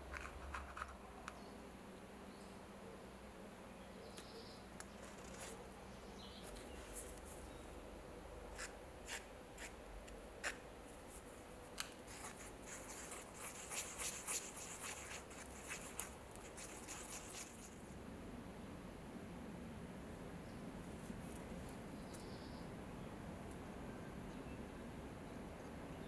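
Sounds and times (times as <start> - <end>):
stick stirring paste scratchy ticks: 8.6 - 9.8, 11.8 - 17.8.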